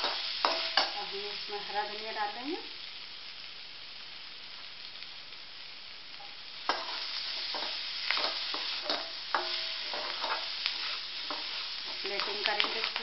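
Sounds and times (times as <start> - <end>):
food sizzling in a pan: 0.0 - 13.0
metal spatula scraping a pan: 6.7 - 13.0.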